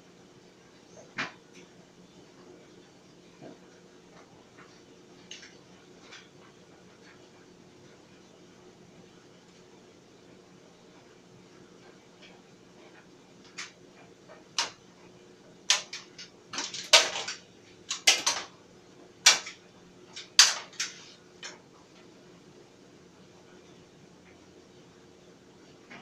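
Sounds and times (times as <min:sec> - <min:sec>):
clothes dryer hum: 0:00.0 - 0:26.0
items clinking against dryer drum: 0:15.7 - 0:18.6.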